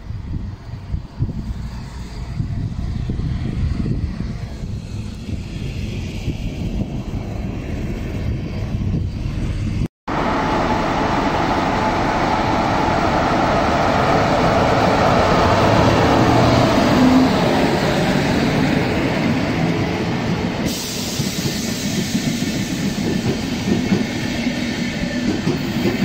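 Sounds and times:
electric locomotive passing: 0:00.0 - 0:26.0
train wheels clicking over rail joints: 0:20.6 - 0:26.0.

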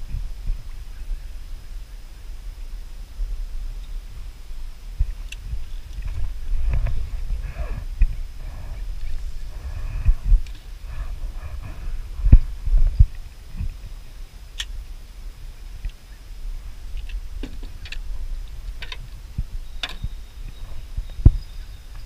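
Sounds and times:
steady low rumble: 0:00.0 - 0:22.0.

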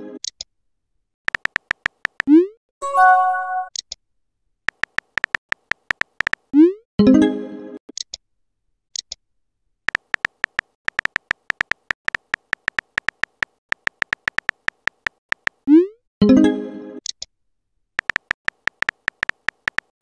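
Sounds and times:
phone keyboard typing clicks: 0:01.3 - 0:02.3, 0:04.7 - 0:06.5, 0:09.9 - 0:15.6, 0:18.0 - 0:19.9
short chime: 0:02.8 - 0:03.7.

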